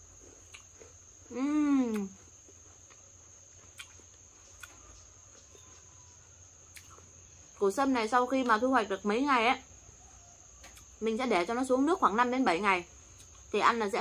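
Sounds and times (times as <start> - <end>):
woman chewing crunchy food: 0.0 - 5.9, 6.6 - 7.2
cricket drone: 0.0 - 14.0
woman humming mmm: 1.3 - 2.2.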